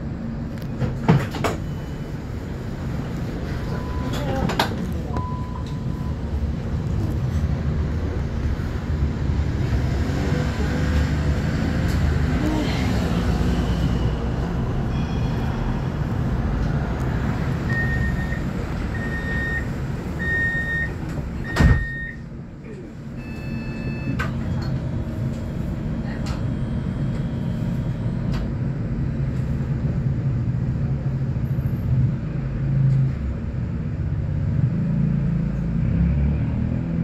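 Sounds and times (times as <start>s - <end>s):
vehicle rumble: 0.0s - 37.0s
high warning beeps: 17.7s - 22.2s
doors shutting with a thump: 21.5s - 21.9s.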